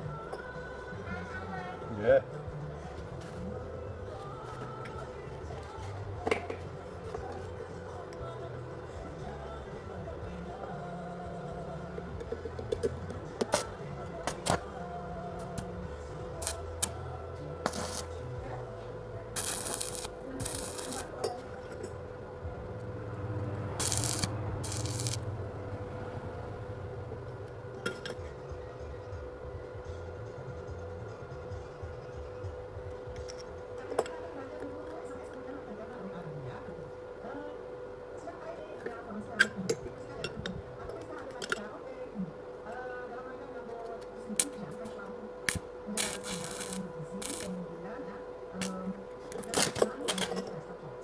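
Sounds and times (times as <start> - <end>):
steady low hum: 0.0 - 51.0
welding arc hissing and crackling: 16.4 - 17.0, 17.6 - 18.2, 19.3 - 21.2, 23.8 - 25.3, 45.5 - 47.6.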